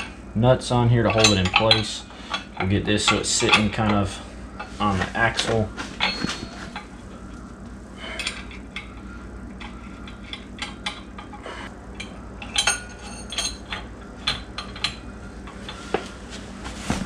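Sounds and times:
low steady hum: 0.0 - 17.0
metal hardware clinking: 1.1 - 4.0, 4.6 - 6.9, 12.0 - 15.0.

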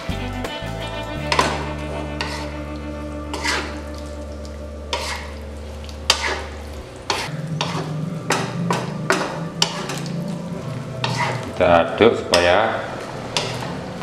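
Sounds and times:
broth sizzling: 0.0 - 14.0
spatula scraping a wok: 1.0 - 11.6, 12.2 - 14.0
steady low hum: 1.6 - 14.0.

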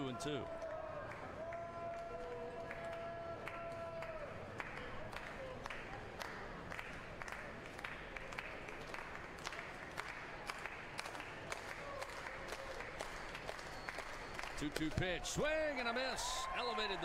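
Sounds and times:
crowd clapping: 0.6 - 15.1.

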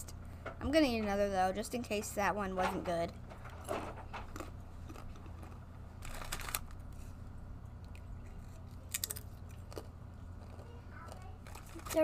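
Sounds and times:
low steady hum: 0.0 - 12.0
crunching chips being chewed: 4.2 - 6.8, 7.8 - 12.0.

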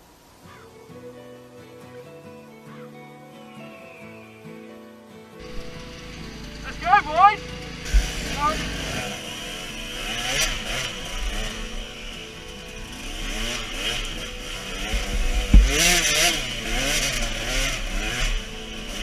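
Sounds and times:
motorcycle engine revving: 5.4 - 19.0
sharp thump: 15.1 - 16.0.

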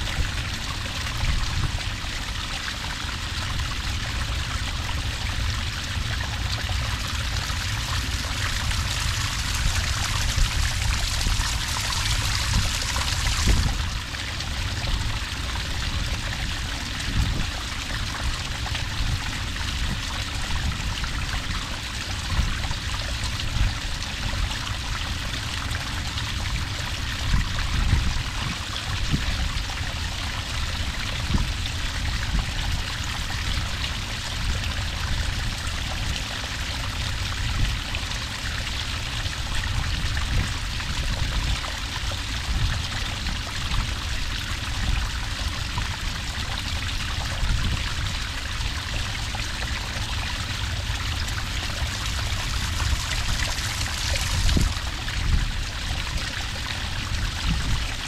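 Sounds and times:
water pouring onto sand: 7.3 - 14.2, 50.4 - 56.2.

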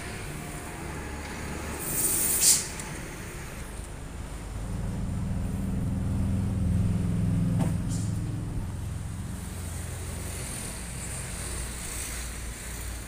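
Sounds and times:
low engine hum: 0.0 - 13.0
loud hiss: 1.8 - 3.2.

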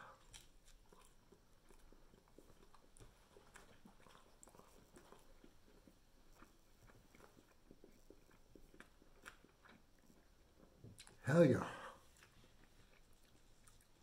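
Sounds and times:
mouth clicks from chewing: 0.0 - 11.2.

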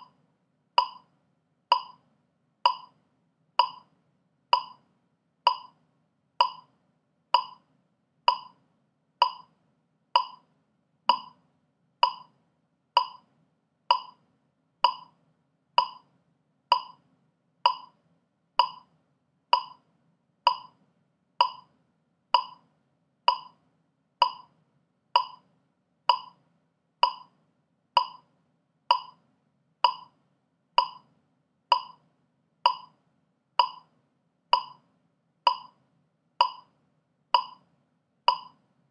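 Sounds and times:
metronome clicking: 0.8 - 1.1, 1.7 - 2.0, 2.7 - 2.9, 3.6 - 3.9, 4.6 - 4.8, 5.5 - 5.8, 6.4 - 6.7, 7.4 - 7.6, 8.3 - 8.6, 9.2 - 9.5, 10.2 - 10.4, 11.1 - 11.4, 12.0 - 12.3, 13.0 - 13.2, 13.9 - 14.2, 14.8 - 15.1, 15.8 - 16.0, 16.7 - 17.0, 17.7 - 18.0, 18.6 - 18.9, 19.6 - 19.8, 20.5 - 20.8, 21.4 - 21.7, 22.4 - 22.6, 23.3 - 23.6, 24.2 - 24.5, 25.2 - 25.4, 26.1 - 26.4, 27.0 - 27.3, 28.0 - 28.2, 28.9 - 29.2, 29.8 - 30.1, 30.8 - 31.0, 31.7 - 32.0, 32.7 - 32.9, 33.6 - 33.9, 34.6 - 34.8, 35.5 - 35.8, 36.4 - 36.7, 37.4 - 37.6, 38.3 - 38.6.

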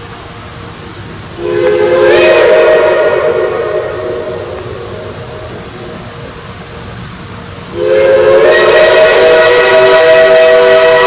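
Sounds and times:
steam hissing: 0.0 - 11.0
steam locomotive whistle: 1.4 - 6.1, 7.7 - 11.0.

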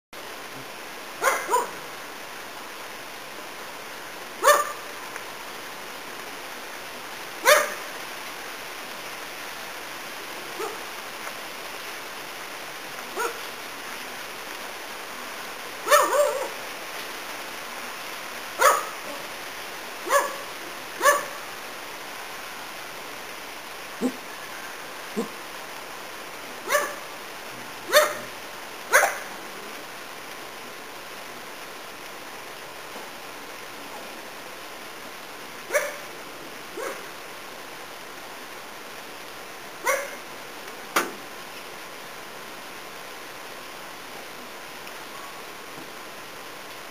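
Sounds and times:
steady background hiss: 0.2 - 46.9
dog barking: 1.2 - 1.8, 4.4 - 4.9, 7.4 - 7.9, 10.6 - 10.8, 13.2 - 13.4, 15.8 - 16.6, 18.6 - 19.2, 20.1 - 21.4, 26.7 - 27.0, 27.9 - 28.3, 28.9 - 29.3, 35.7 - 36.0, 36.8 - 37.0, 39.8 - 40.2.

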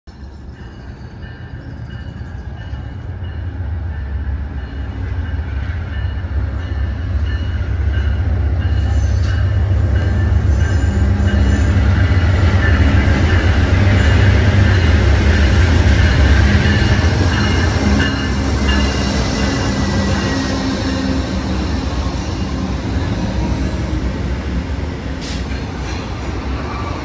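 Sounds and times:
diesel locomotive engine rumble: 0.1 - 27.0.

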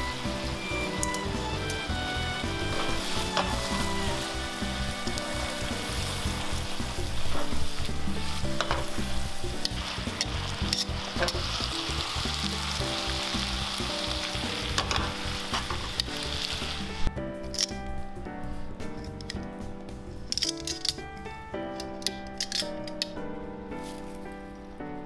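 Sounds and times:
food sizzling in frying pan: 0.0 - 17.1.

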